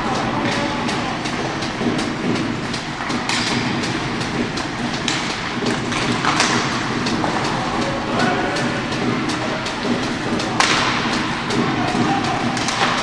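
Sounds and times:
hockey sticks and puck clacking: 0:00.0 - 0:13.0
skate blades scraping ice: 0:00.2 - 0:13.0.

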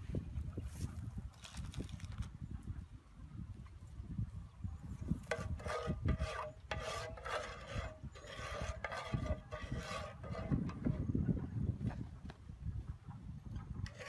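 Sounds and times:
spatula scraping frying pan: 0:05.2 - 0:11.1.

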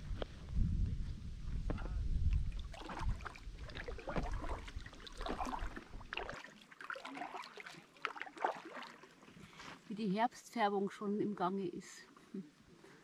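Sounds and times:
wind rumbling on microphone: 0:00.0 - 0:06.3
water splashing and lapping: 0:02.3 - 0:10.0
paddle strokes: 0:02.6 - 0:09.9.

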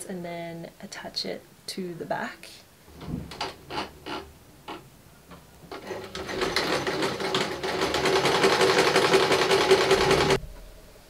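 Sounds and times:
sewing machine stitching: 0:05.7 - 0:10.4.

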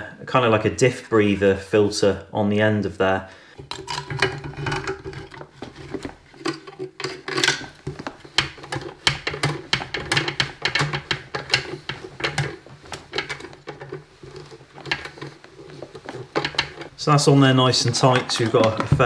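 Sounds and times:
metal parts clicking and scraping: 0:03.6 - 0:17.0, 0:17.6 - 0:19.0.

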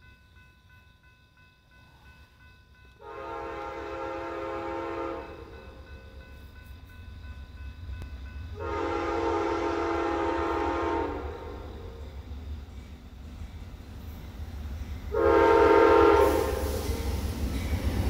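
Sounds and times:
train rumbling: 0:00.0 - 0:18.0
train horn blasts: 0:03.0 - 0:05.6, 0:08.6 - 0:12.0, 0:15.1 - 0:17.0.

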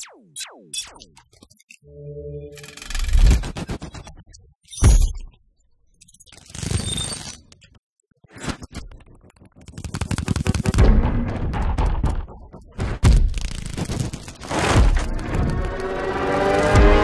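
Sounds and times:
sharp clicks and ticks: 0:08.9 - 0:17.0
deep heavy hits: 0:10.8 - 0:13.4.

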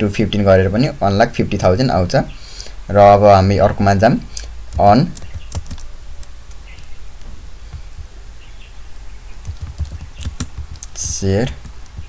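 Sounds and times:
steady low hum: 0:00.0 - 0:12.0
computer keyboard keys clicking: 0:05.2 - 0:06.9, 0:09.3 - 0:12.0.

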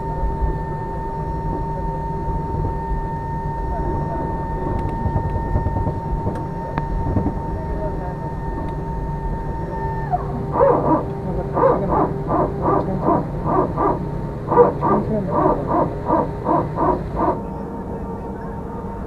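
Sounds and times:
airliner cabin hum: 0:00.0 - 0:19.0
short hoot-like tones: 0:10.0 - 0:17.4.

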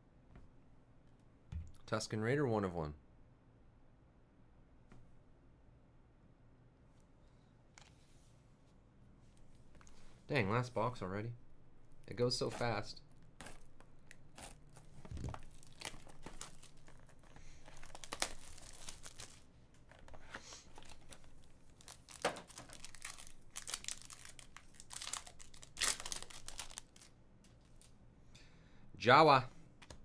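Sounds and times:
shrink wrap crinkling and tearing: 0:11.8 - 0:28.0
foil pack tearing: 0:12.4 - 0:19.4, 0:21.8 - 0:27.1.

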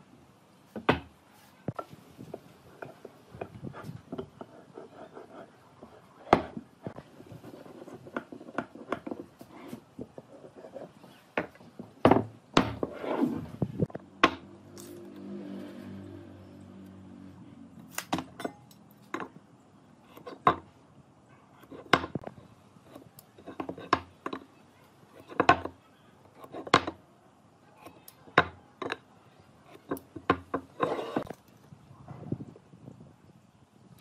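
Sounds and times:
rustling scrape: 0:12.8 - 0:13.9, 0:30.7 - 0:31.4.

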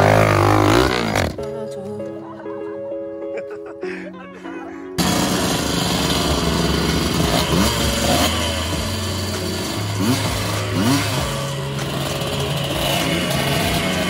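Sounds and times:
engine throttle blips: 0:05.0 - 0:14.0
motorcycle engine idling: 0:05.0 - 0:14.0.

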